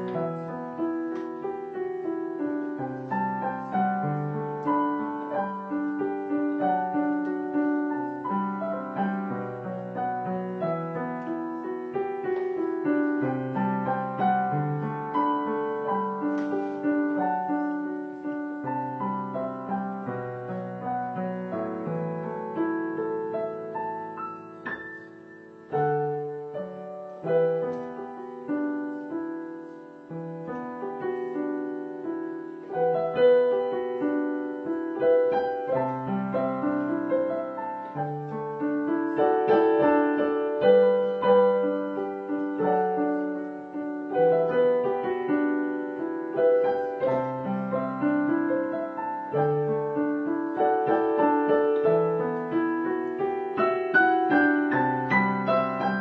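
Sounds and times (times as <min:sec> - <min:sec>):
slow piano piece: 0:00.0 - 0:56.0.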